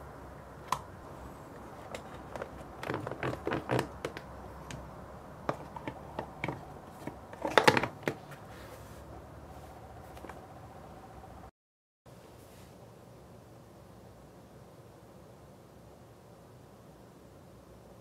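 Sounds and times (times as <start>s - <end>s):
plastic lids clicking: 1.6s - 8.3s.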